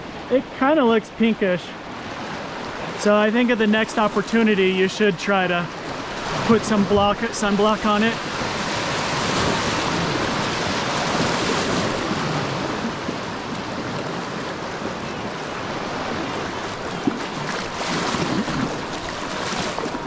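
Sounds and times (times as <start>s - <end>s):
creek water rushing: 0.0s - 20.0s
wind on microphone: 7.8s - 20.0s.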